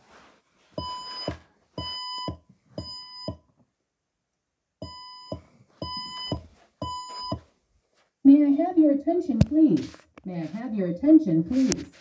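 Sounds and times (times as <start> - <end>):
fire alarm electronic beeps: 0.8 - 3.4, 4.8 - 7.4.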